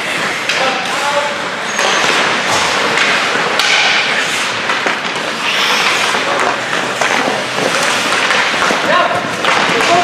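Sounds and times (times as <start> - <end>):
sticks and puck clacking: 0.0 - 10.0
skate blades scraping ice: 1.6 - 10.0.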